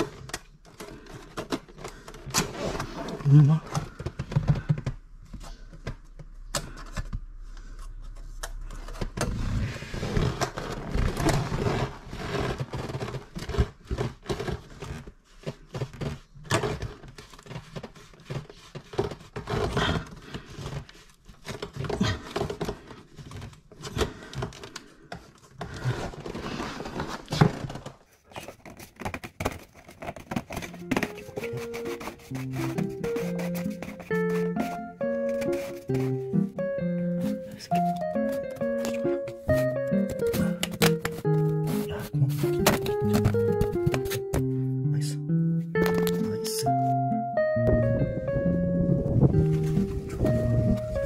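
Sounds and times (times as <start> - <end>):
plastic duct scraping: 7.6 - 44.6, 47.8 - 51.0
knocks and clicks: 30.1 - 44.5.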